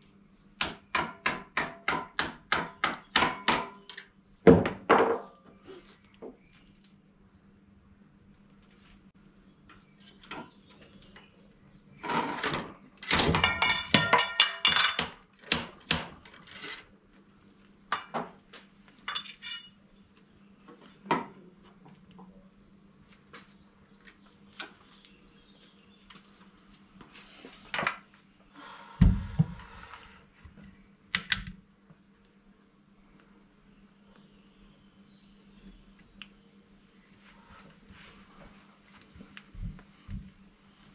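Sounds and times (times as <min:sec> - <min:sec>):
metal tools clinking and rattling: 0:13.0 - 0:15.0, 0:19.1 - 0:19.8.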